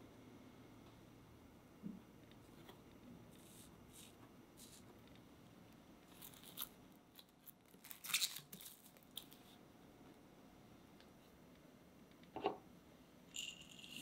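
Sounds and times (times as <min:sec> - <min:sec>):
cling film crinkling: 0:06.1 - 0:09.5.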